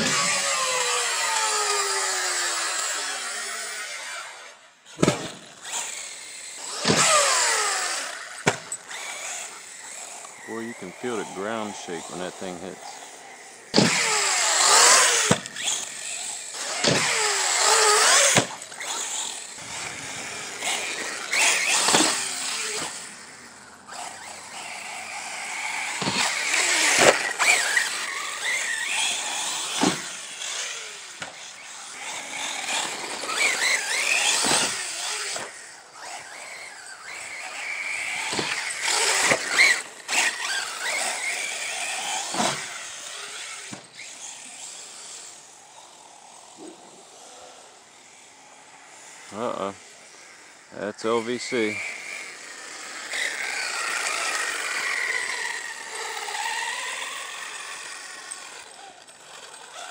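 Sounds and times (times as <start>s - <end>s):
electric motor whining: 0.0s - 59.9s
tyres scrabbling on dirt: 13.7s - 44.4s.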